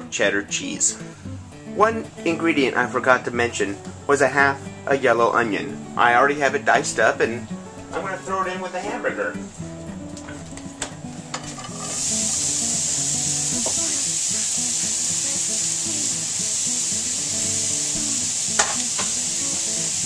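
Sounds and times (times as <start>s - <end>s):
onion sizzling in a frying pan: 11.1s - 20.0s.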